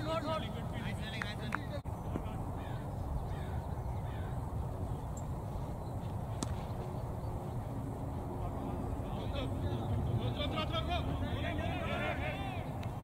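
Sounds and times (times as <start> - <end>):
faint bird calls: 1.9 - 7.7.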